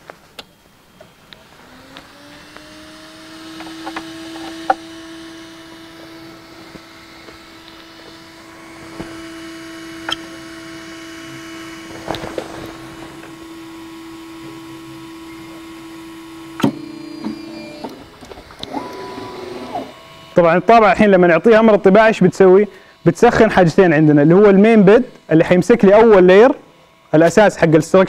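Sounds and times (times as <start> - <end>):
printer motor hum: 0.0 - 28.0.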